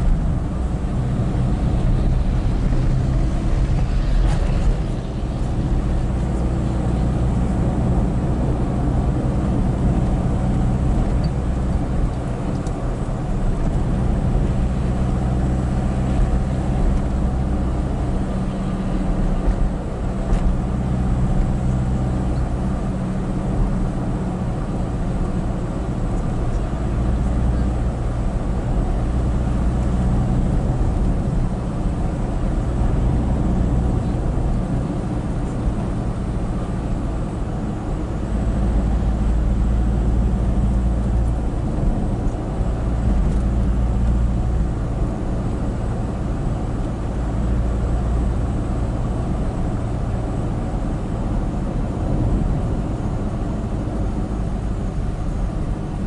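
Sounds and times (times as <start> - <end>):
vehicle engine hum: 0.0 - 56.0.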